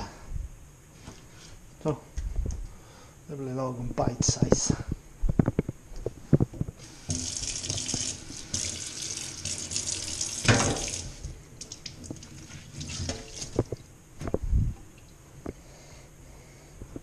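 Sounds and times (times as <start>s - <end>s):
tap running into steel sink: 9.5s - 11.1s.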